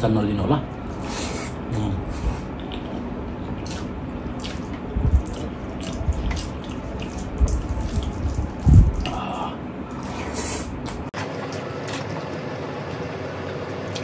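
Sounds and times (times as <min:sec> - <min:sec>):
wet chewing and lip-smacking: 0:02.2 - 0:09.2.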